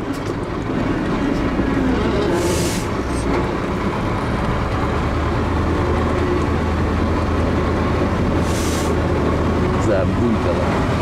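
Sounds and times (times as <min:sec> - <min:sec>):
truck engine running: 0:00.0 - 0:11.0
short hiss: 0:08.4 - 0:09.0.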